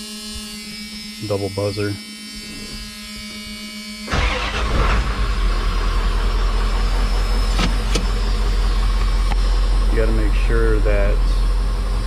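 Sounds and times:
warning buzzer tone: 0.0s - 4.1s
truck engine starting and idling: 4.1s - 12.0s.

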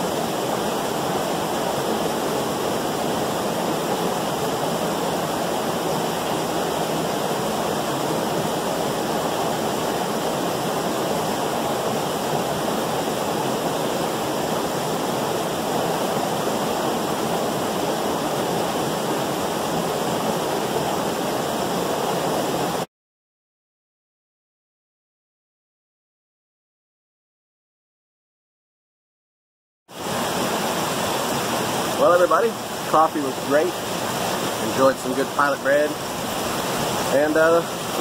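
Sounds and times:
creek pouring over rocks: 30.0s - 38.0s.

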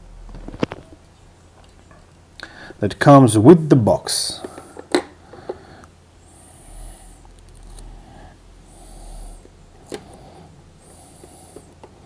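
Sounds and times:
soft breathing: 2.4s - 2.8s, 4.4s - 12.0s.

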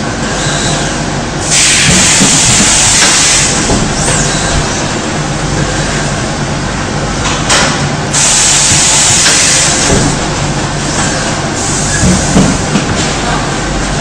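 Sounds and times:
welding machine running: 0.0s - 14.0s
compressed air hissing: 1.4s - 5.0s, 8.1s - 10.2s.

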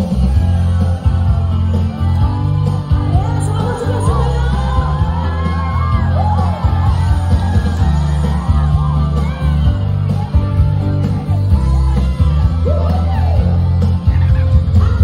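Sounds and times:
crowd yelling and singing along: 0.0s - 15.0s
heavy booming bass line: 0.0s - 15.0s
live rock band playing: 0.0s - 15.0s
woman singing: 3.0s - 5.2s.

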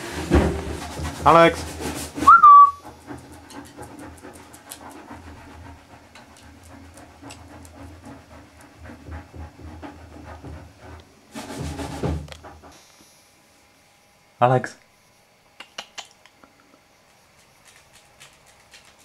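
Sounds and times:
dog panting: 2.8s - 11.1s.

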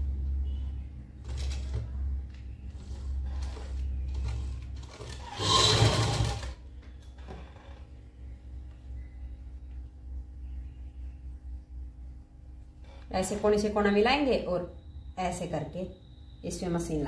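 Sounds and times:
sewing machine stitching: 2.8s - 6.6s.

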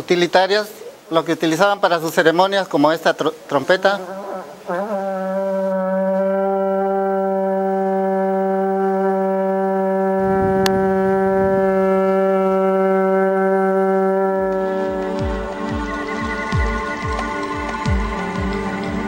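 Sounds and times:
ceramic trumpet low note: 10.2s - 13.2s.

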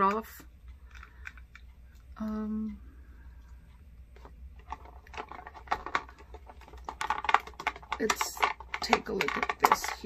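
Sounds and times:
cosmetic bottles clicking: 4.2s - 10.0s
packaging rustling: 4.6s - 10.0s.

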